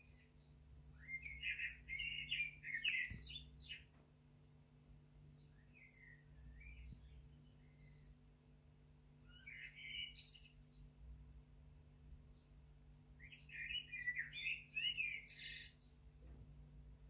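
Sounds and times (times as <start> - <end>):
blackbird singing: 0.0 - 3.9, 5.3 - 8.2, 9.2 - 10.9, 13.2 - 16.0.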